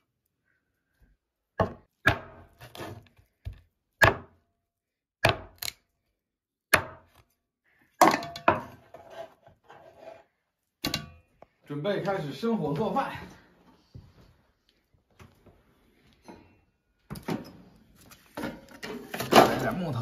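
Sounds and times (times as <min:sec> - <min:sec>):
cleaver chopping on wooden block: 0:01.6 - 0:02.4, 0:03.4 - 0:04.4, 0:05.2 - 0:05.7, 0:06.7 - 0:07.2.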